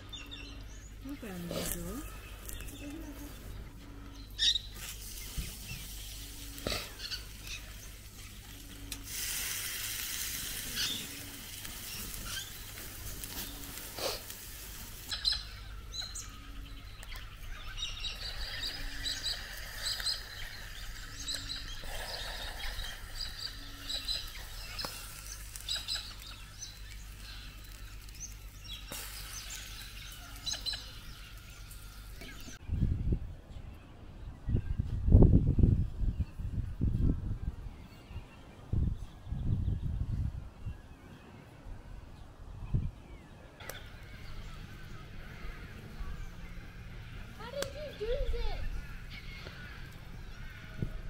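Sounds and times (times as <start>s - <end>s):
birds chirping and calling: 0.0s - 51.0s
outdoor background noise: 0.0s - 51.0s
steady hiss: 4.6s - 16.3s, 17.5s - 32.6s.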